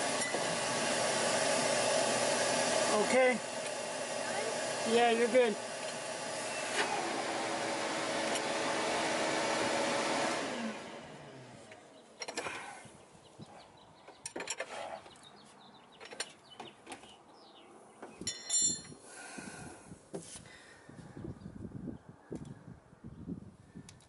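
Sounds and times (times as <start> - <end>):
vacuum pump running: 0.0 - 11.6
bright metallic clink: 18.3 - 18.9.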